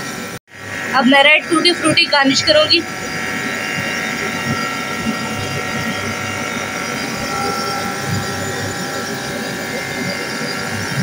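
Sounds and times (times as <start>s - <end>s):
machine hum with high whine: 0.0s - 11.0s.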